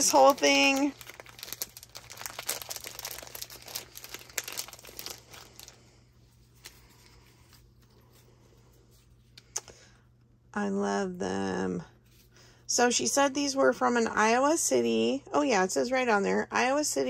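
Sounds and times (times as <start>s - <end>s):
packaging crinkling: 0.0s - 7.9s.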